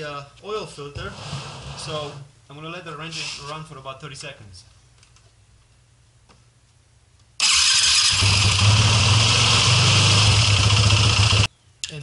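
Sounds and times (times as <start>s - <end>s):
motorcycle engine starting and idling: 7.4s - 11.5s.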